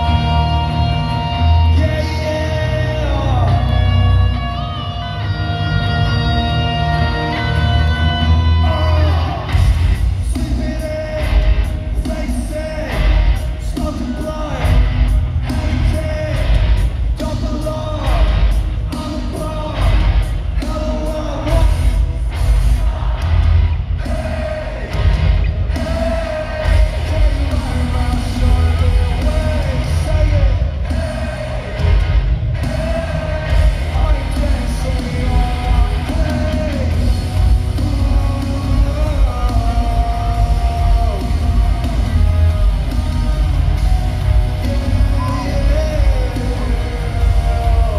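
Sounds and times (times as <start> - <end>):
electric guitars: 0.0 - 47.9
pounding drums: 9.1 - 47.9
person singing and shouting: 44.6 - 47.9.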